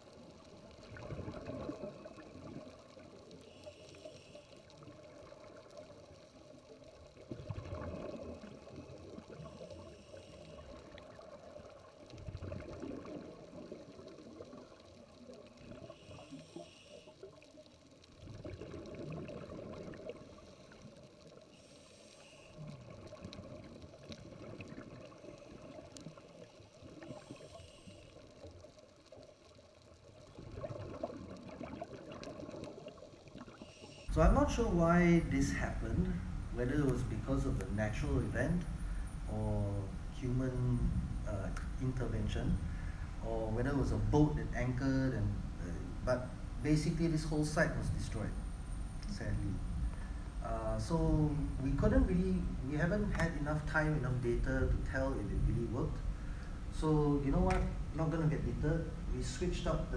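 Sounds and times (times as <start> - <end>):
exhaled bubbles gurgling: 0.0 - 59.9
breath hissing through regulator: 21.5 - 22.8.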